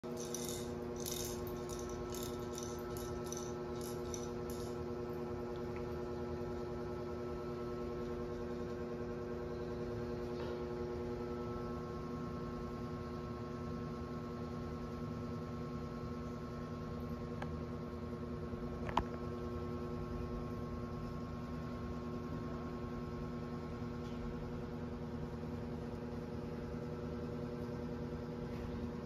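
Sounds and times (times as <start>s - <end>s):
motorised toy humming: 0.1s - 4.8s
plastic toy rattling on tile floor: 0.1s - 4.8s.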